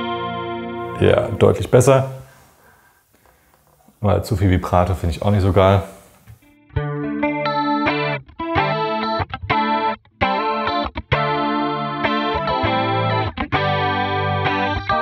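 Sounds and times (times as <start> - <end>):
clean electric guitar chords: 0.0 - 2.3, 6.6 - 15.0.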